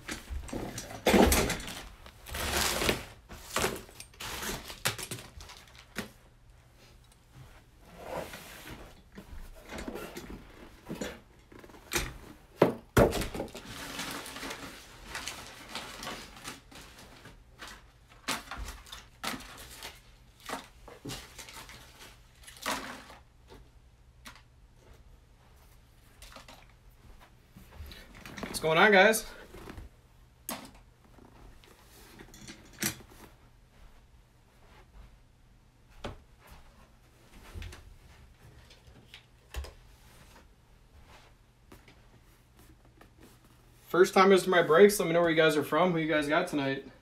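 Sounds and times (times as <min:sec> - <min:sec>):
knocks and thumps of objects handled: 0:09.2 - 0:13.6.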